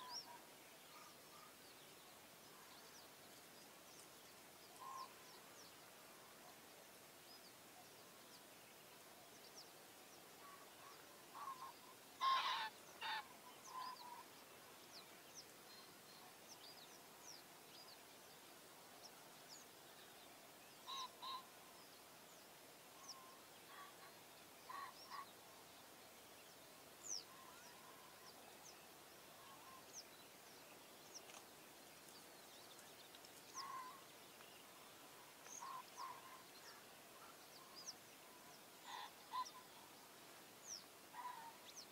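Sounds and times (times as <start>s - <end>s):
birds calling in pairs: 10.5s - 15.5s, 27.0s - 40.0s, 40.6s - 41.9s.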